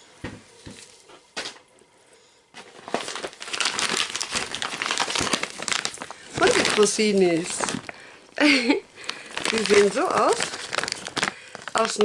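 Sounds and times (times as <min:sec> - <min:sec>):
plastic packaging crinkling: 0:02.6 - 0:12.0.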